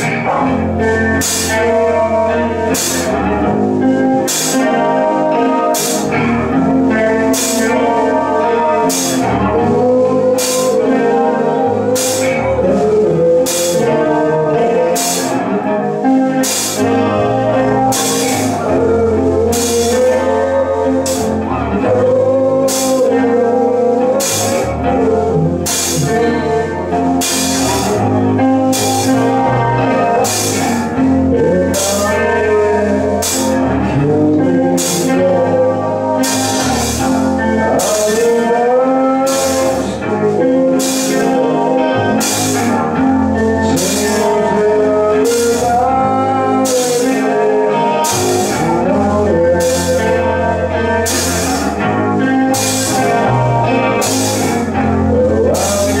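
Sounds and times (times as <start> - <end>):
drum kit with cymbals: 0.0 - 11.1, 12.0 - 14.1, 14.9 - 21.5, 22.6 - 23.4, 24.0 - 32.2, 32.8 - 33.9, 34.8 - 35.4, 36.2 - 38.6, 39.2 - 40.0, 40.7 - 41.5, 42.1 - 45.8, 46.6 - 47.4, 49.6 - 50.2, 51.0 - 51.8, 52.5 - 56.0
bass guitar: 0.0 - 56.0
electric guitar: 0.0 - 56.0
person singing: 0.0 - 56.0.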